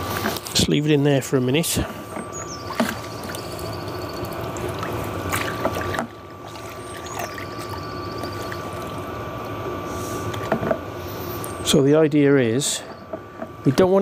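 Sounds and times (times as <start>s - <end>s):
liquid sloshing in a bucket: 1.6s - 9.2s.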